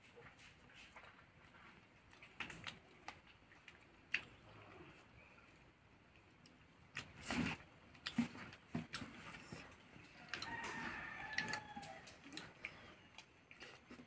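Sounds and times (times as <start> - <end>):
eating with fingers clicks: 2.1 - 4.4, 10.0 - 14.0
rooster crowing: 10.1 - 12.3.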